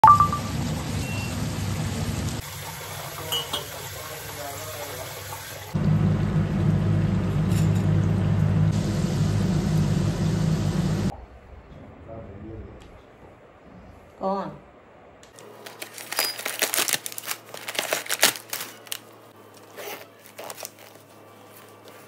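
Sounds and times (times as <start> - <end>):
food deep-frying in hot oil: 0.0 - 11.1
low hum: 5.8 - 15.2.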